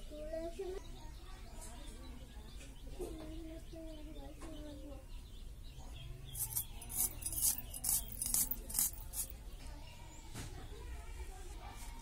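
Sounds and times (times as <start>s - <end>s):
knife blade scraping: 6.4s - 9.3s.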